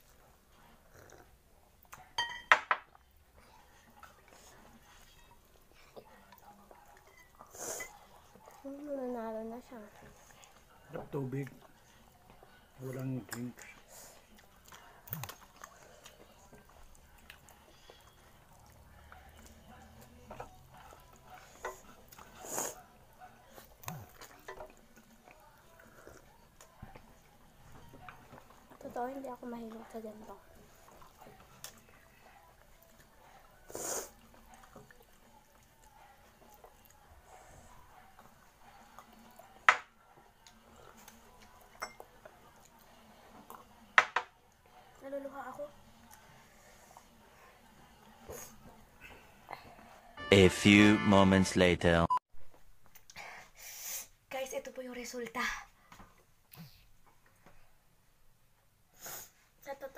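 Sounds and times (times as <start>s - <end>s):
glasses and utensils clinking: 2.2s - 2.9s, 41.8s - 42.1s.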